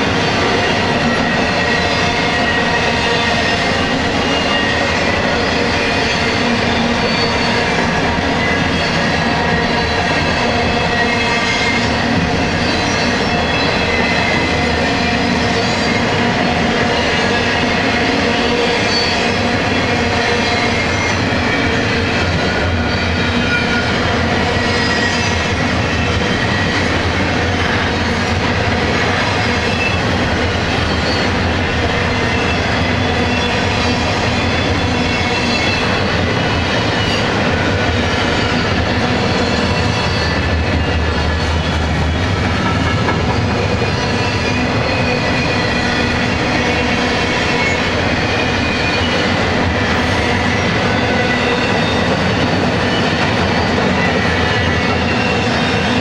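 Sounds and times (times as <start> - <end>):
train wheels rolling on rails: 0.0 - 56.0
high-pitched wheel squeals: 1.0 - 16.1, 18.5 - 21.6.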